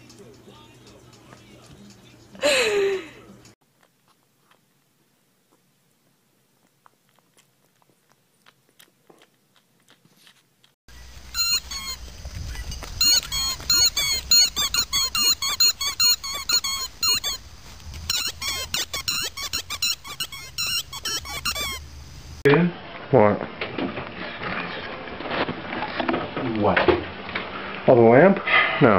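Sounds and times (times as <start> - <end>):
puppy sucking on pacifier: 5.5 - 12.0, 13.0 - 21.8
squeaky toy squeaking: 11.3 - 12.0, 12.6 - 17.4, 18.1 - 21.9.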